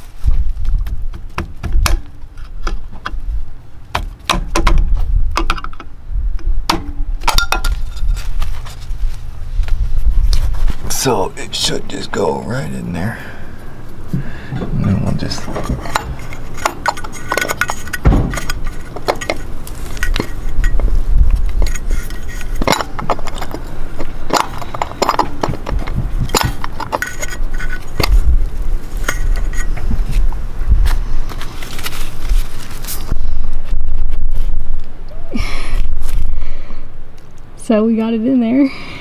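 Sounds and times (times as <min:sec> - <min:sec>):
wind rumble on microphone: 0:00.0 - 0:03.7, 0:04.4 - 0:11.0, 0:13.9 - 0:37.2
small metal clicks and scrapes: 0:15.2 - 0:30.3.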